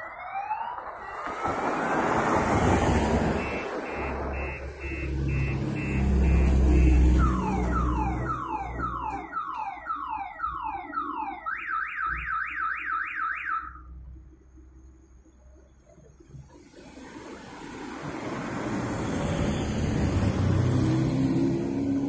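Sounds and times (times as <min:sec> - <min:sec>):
car alarm cycling tones: 0:02.8 - 0:14.0.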